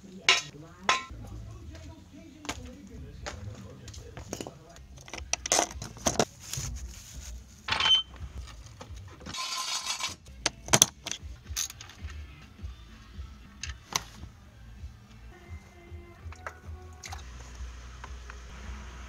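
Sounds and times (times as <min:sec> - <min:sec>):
metal tools clanking: 0:00.2 - 0:01.1, 0:07.7 - 0:08.2, 0:09.2 - 0:11.8.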